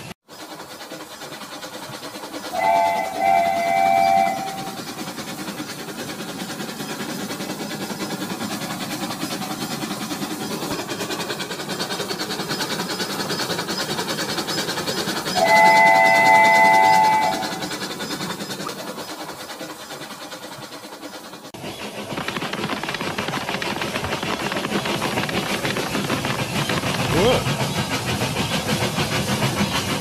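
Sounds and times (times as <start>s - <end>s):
rapid clicking of wheels on track: 0.0s - 30.0s
toy train motor whirring: 0.4s - 21.6s
electronic train whistle: 2.5s - 4.8s, 15.4s - 17.7s.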